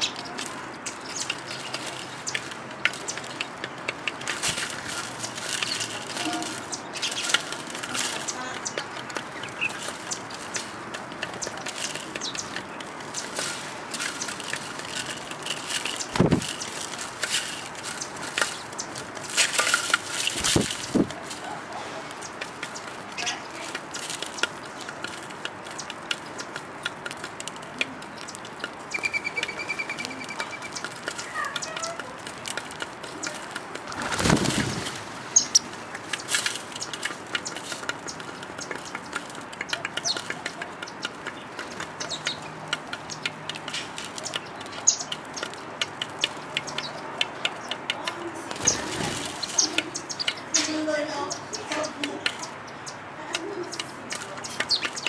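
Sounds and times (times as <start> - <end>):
flurry of wingbeats: 0.0 - 50.9
doves pecking on hard ledge: 0.0 - 55.0
high chirps: 28.3 - 31.7.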